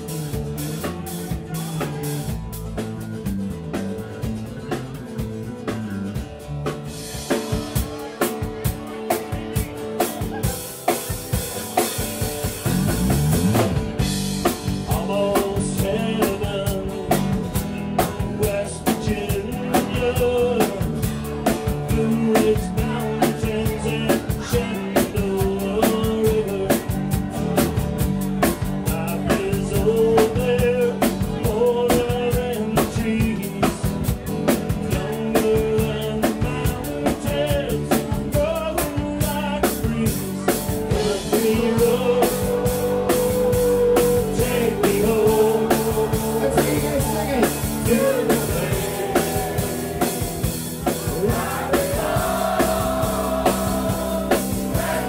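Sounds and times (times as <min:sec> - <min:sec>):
acoustic guitar: 0:00.0 - 0:55.0
snare and bass drum beat: 0:06.7 - 0:55.0
man singing: 0:14.4 - 0:27.8, 0:28.4 - 0:55.0.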